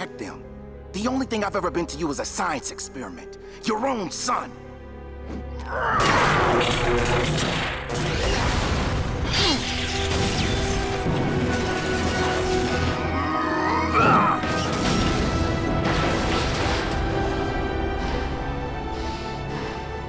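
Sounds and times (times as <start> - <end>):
dramatic background music: 0.0 - 20.0
cartoon crashes and smashes: 6.0 - 13.0
electric crackling: 6.4 - 13.1.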